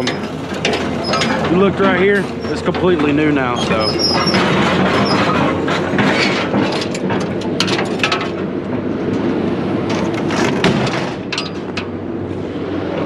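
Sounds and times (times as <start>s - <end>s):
metal clicks and clatters: 0.0s - 9.2s, 9.9s - 11.9s.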